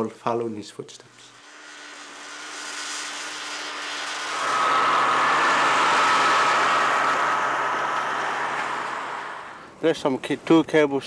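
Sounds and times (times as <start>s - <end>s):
snowmobile engine passing: 1.4s - 9.7s.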